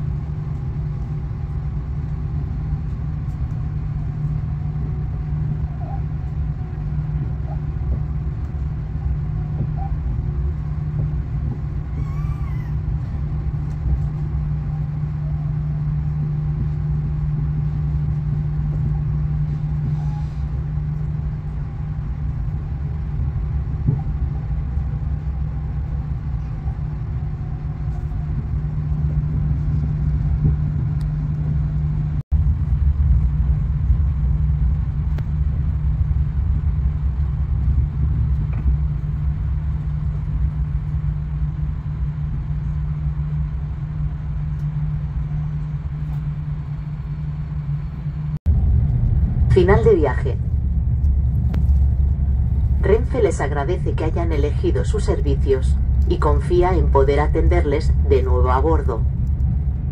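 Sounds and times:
train rumbling on track from inside: 0.0s - 59.9s.

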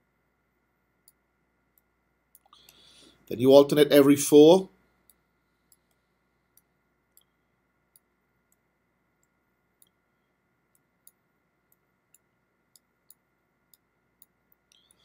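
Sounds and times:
stylus tapping tablet screen: 4.9s - 15.0s.

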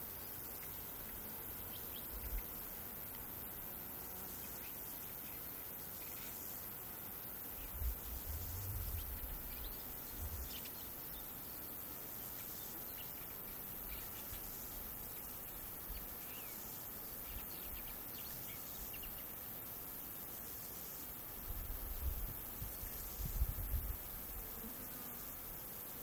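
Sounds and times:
small birds chirping: 0.0s - 3.2s, 7.4s - 19.6s
steady hiss: 0.0s - 26.0s.

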